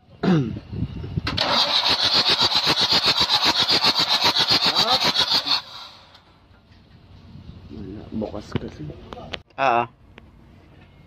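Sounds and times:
diesel engine cranking without firing: 1.2 - 6.4.

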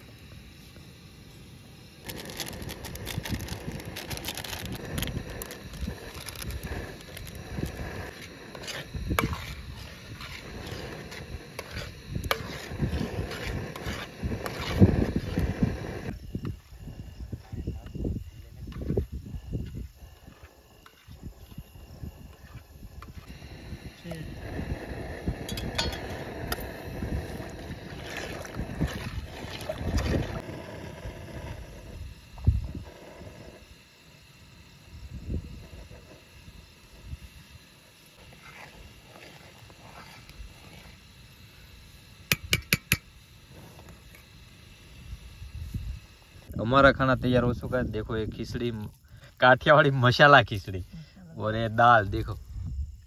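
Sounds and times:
ladle stirring thick liquid: 2.1 - 15.8, 27.4 - 30.5, 38.2 - 40.9
spoon stirring thick food in pot: 8.2 - 15.5
spoon scraping and clinking on pot: 25.5 - 26.1.

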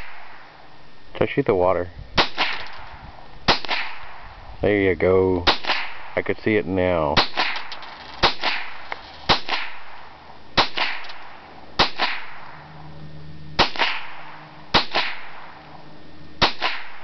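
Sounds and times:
rifle shots: 2.2 - 4.4, 5.4 - 6.2, 7.2 - 12.8, 13.6 - 15.8, 16.4 - 17.0.

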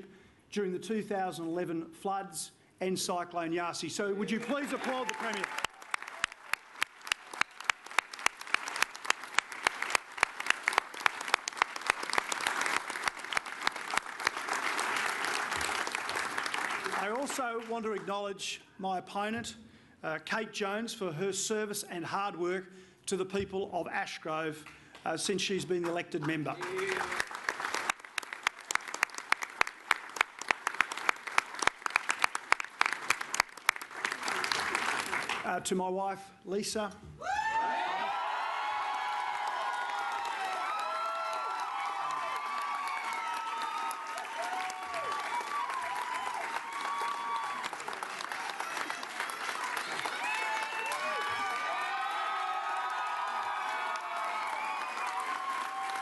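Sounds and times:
crowd clapping: 4.2 - 18.1, 25.8 - 35.6, 38.0 - 56.0
close claps near microphone: 4.4 - 18.1, 25.8 - 35.6, 38.6 - 56.0.

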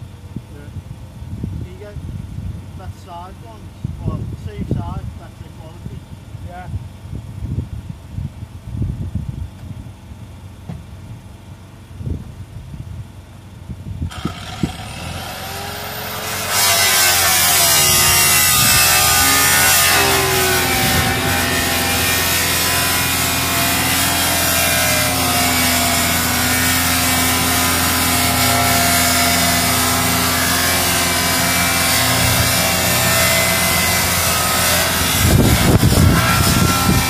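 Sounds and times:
power tool cutting metal: 14.1 - 37.0
power tool whine: 14.1 - 37.0.

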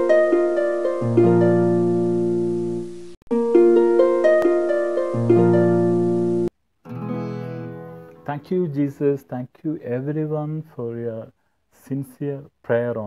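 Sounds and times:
plucked string arpeggios: 0.0 - 8.4.

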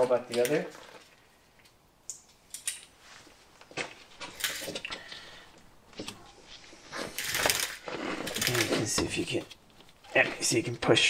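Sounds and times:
metallic clicks of bolts and parts: 1.6 - 2.9.

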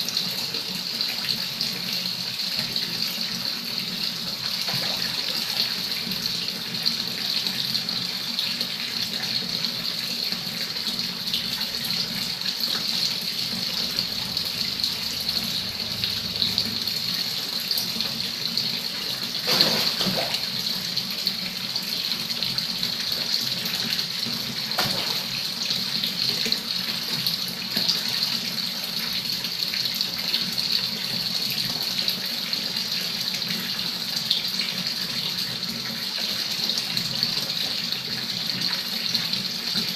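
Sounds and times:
water splash: 19.4 - 20.5, 24.8 - 25.4.

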